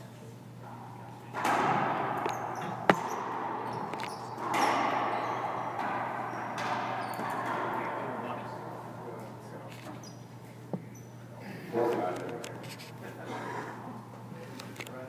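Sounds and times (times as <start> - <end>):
racquetball hits echoing: 1.3 - 11.0.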